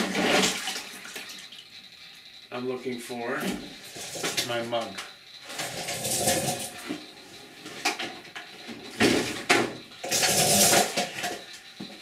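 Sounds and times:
objects knocking and clattering: 7.8 - 12.0.

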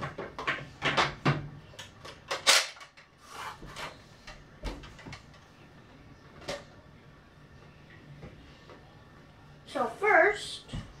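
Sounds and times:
plastic toy blasters clacking: 1.8 - 3.0.

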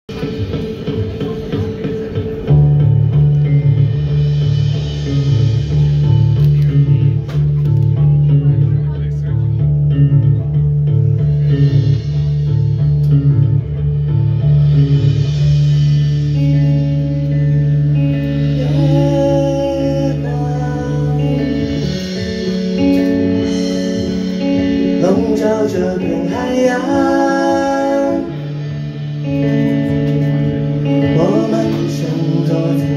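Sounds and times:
melodic bass line: 0.1 - 32.9
picked guitar notes: 0.1 - 32.9
person singing: 18.2 - 30.0, 30.8 - 32.9.

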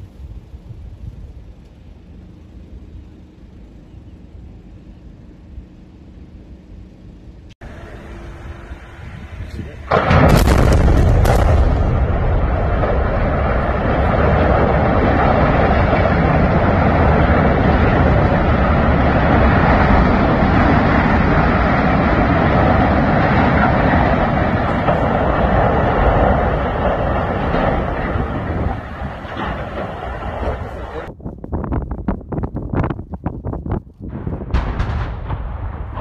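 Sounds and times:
explosive blasts: 8.8 - 31.1, 34.1 - 36.0
structure collapsing rumble: 8.8 - 33.0, 34.0 - 36.0.

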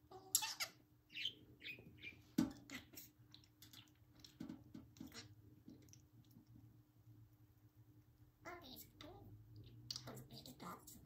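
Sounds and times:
budgerigar chirping and chattering: 0.2 - 3.9.

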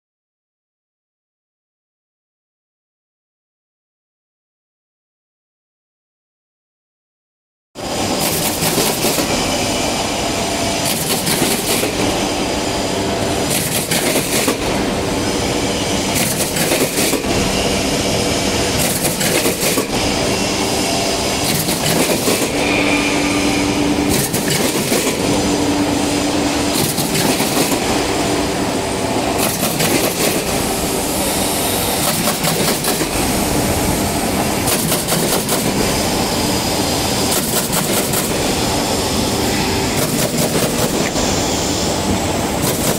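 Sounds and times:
machine hissing: 7.8 - 42.9
machine clattering: 8.1 - 9.5, 10.7 - 12.2, 13.4 - 14.9, 16.1 - 17.8, 18.7 - 20.2, 21.4 - 22.9, 24.1 - 25.5, 26.7 - 28.3, 29.3 - 30.6, 32.0 - 33.4, 34.5 - 36.1, 37.2 - 38.5, 39.9 - 41.2, 42.6 - 42.9.

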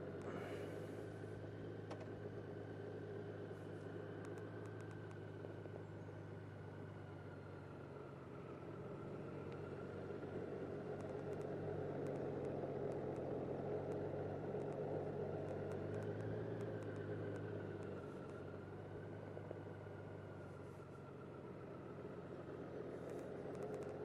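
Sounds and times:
motorcycle engine at low revs: 0.0 - 24.0.

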